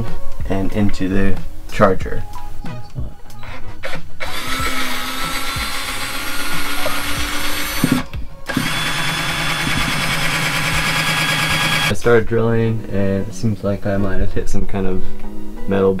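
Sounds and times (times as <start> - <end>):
power drill boring into ceiling: 3.8 - 11.9.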